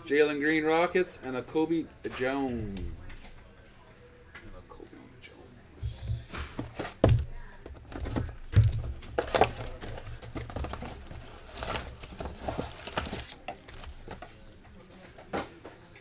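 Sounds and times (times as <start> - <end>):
packaging crinkling and tearing: 10.6 - 14.3.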